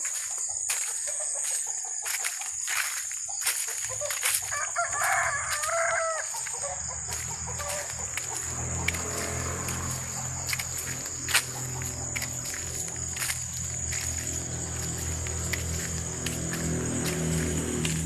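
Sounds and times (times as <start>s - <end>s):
rooster crowing: 3.8s - 13.2s.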